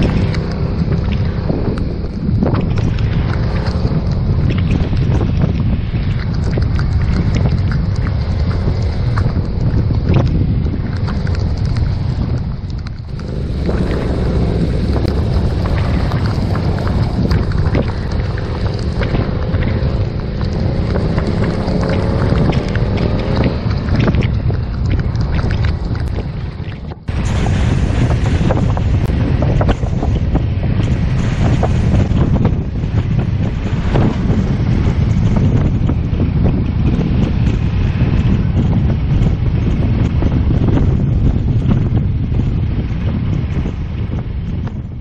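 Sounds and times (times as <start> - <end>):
wind buffeting microphone: 0.0 - 45.0
motorcycle engine: 12.9 - 25.1.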